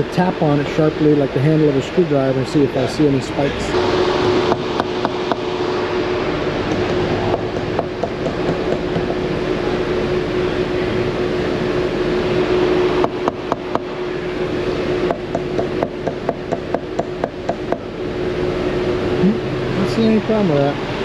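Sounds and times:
engine running hum: 0.0s - 21.0s
screwdriver handle tapping sensor: 15.1s - 17.8s.

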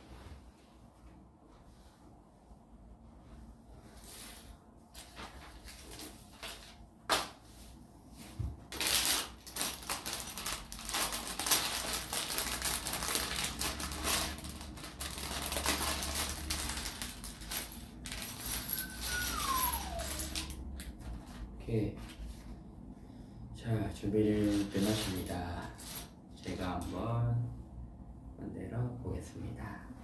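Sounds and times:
plastic bag crinkling: 8.7s - 20.6s
plastic pieces rattling onto table: 8.7s - 20.6s.

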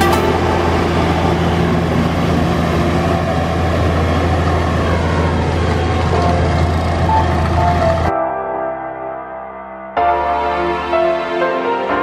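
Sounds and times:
tractor diesel engine running: 0.0s - 8.1s.

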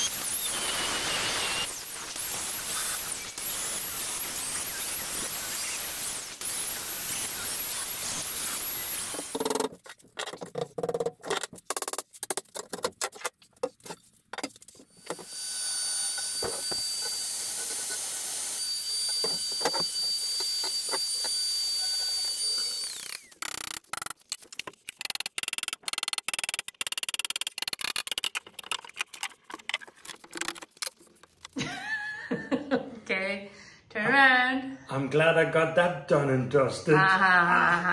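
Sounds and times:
angle grinder cutting stone: 0.0s - 9.5s, 15.0s - 23.9s.

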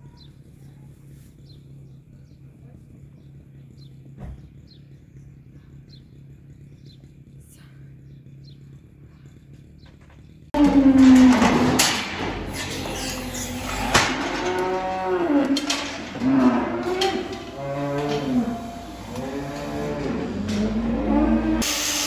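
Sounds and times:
cattle mooing: 10.6s - 21.7s.

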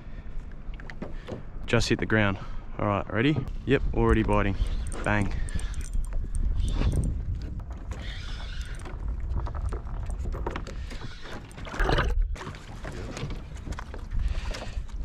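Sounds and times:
wind rumbling on microphone: 3.3s - 15.0s
water slapping against boat: 9.8s - 15.0s.

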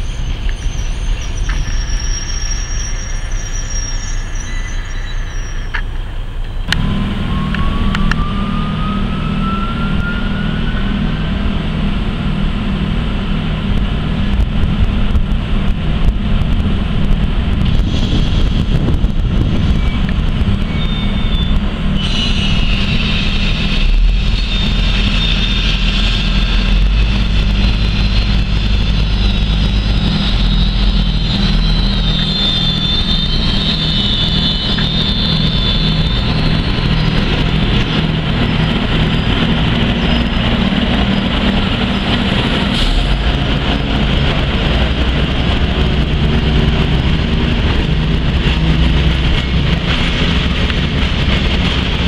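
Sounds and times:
high metallic squeal: 0.0s - 6.1s, 6.8s - 11.5s, 17.7s - 44.0s
electric locomotive humming: 0.0s - 52.0s.

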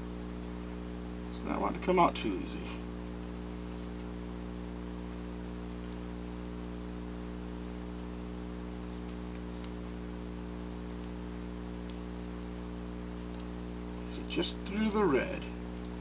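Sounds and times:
electrical mains hum: 0.0s - 16.0s
faint clicks: 13.2s - 13.6s.

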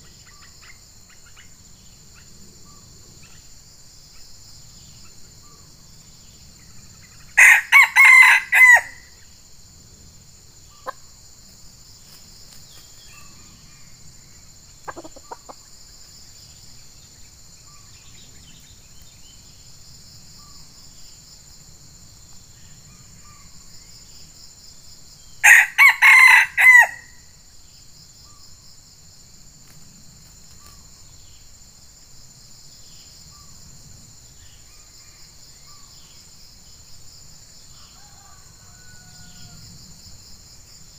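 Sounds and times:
high drone of insects: 0.0s - 40.9s
rooster crowing: 7.4s - 9.2s, 25.4s - 27.2s, 37.8s - 39.8s.

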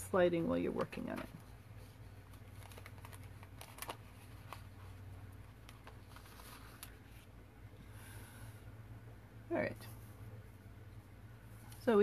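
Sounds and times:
steady low hum: 0.0s - 12.0s
paper rustling: 2.2s - 5.0s, 5.6s - 7.3s.

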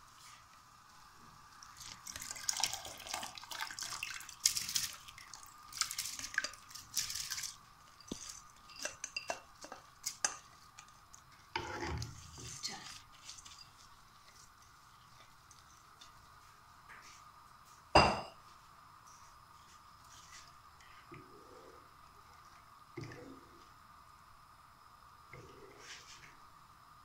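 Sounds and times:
rice splashing into boiling water: 1.5s - 8.5s
spatula scraping and tapping bowl: 8.0s - 14.4s.

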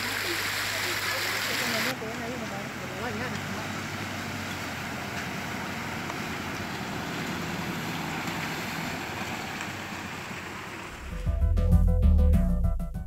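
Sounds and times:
steady hiss: 0.0s - 1.9s
vehicle driving through water: 0.0s - 11.3s.

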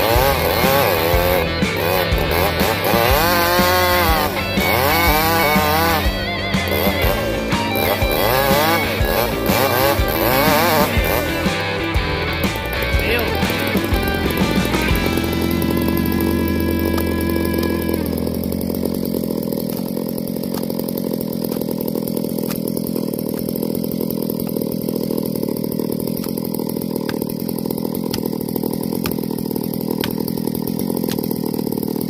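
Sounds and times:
music: 0.0s - 18.2s
chainsaw engine idling: 0.0s - 32.0s.

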